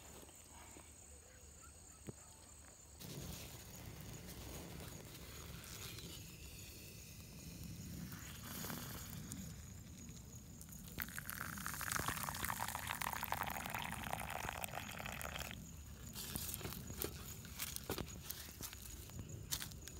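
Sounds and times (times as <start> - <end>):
campfire crackling: 7.0 - 19.2
tea pouring into paper cup: 8.2 - 18.0.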